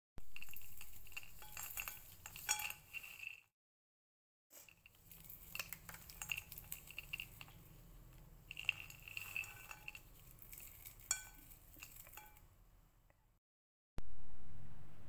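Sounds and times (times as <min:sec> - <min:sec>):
peanuts clattering in a bowl: 0:00.2 - 0:03.5, 0:04.6 - 0:12.5.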